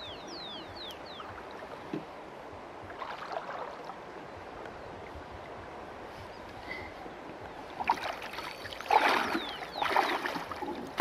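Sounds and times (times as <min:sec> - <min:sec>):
river water splashing: 0:00.8 - 0:06.0, 0:07.5 - 0:11.0.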